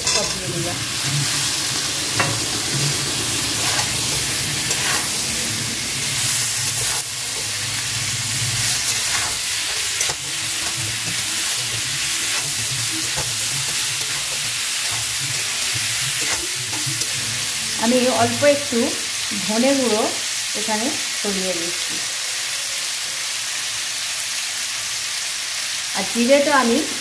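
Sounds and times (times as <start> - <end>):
spatula scraping a pan: 0.0 - 18.4
vegetables sizzling in hot oil: 0.0 - 27.0.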